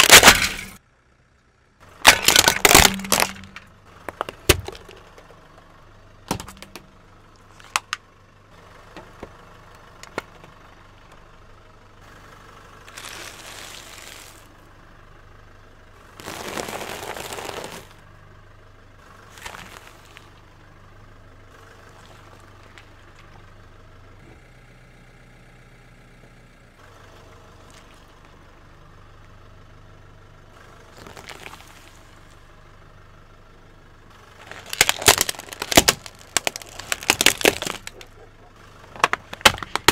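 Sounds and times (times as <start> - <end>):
tyre crushing objects: 0.0 - 0.8, 2.0 - 5.3, 6.3 - 6.9, 16.2 - 18.0, 34.4 - 38.0, 39.0 - 39.9
car engine idling: 0.0 - 39.9.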